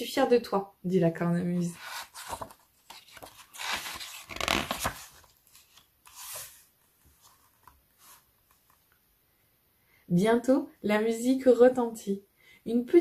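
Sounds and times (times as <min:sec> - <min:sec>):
page turning paper rustle: 0:01.7 - 0:08.9.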